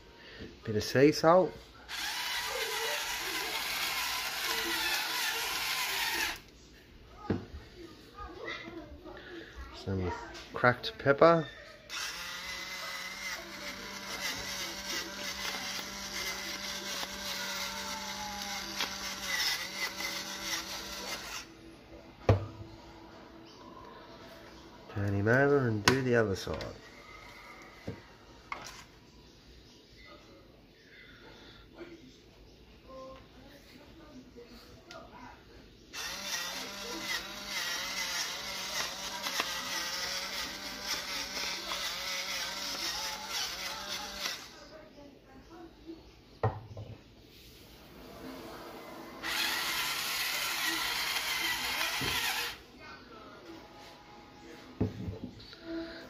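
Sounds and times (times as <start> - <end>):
electric pepper grinder grinding: 1.9 - 6.5, 11.9 - 21.5, 36.0 - 44.6, 49.2 - 52.6.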